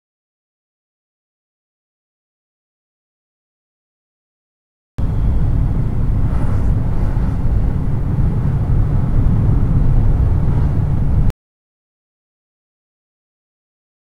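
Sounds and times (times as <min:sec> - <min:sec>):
road and wind noise in car: 0:05.0 - 0:11.3.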